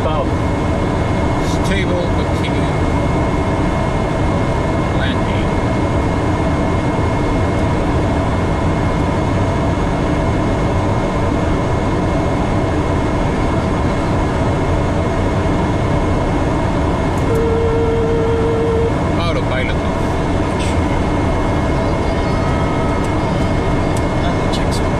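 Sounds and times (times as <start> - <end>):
airflow rush and engine hum: 0.0 - 24.9
faint steady tones: 17.2 - 24.8.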